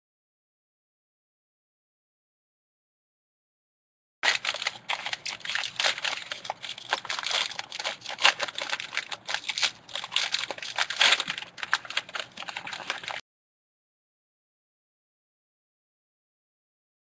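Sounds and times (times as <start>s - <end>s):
foil wrapper tearing and crinkling: 4.2s - 13.2s.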